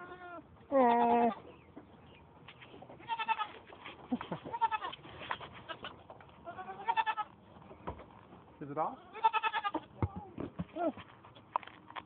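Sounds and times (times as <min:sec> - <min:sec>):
goat kids bleating: 0:00.0 - 0:01.5, 0:03.0 - 0:03.7, 0:04.3 - 0:07.4, 0:08.9 - 0:11.0.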